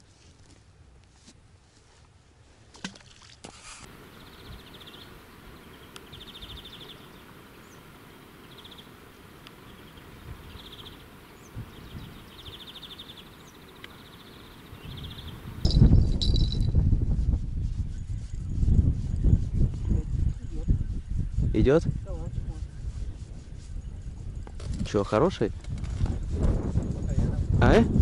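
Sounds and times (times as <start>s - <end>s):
songbird buzzy trill: 3.9s - 16.8s
faint clicks: 13.8s - 14.0s.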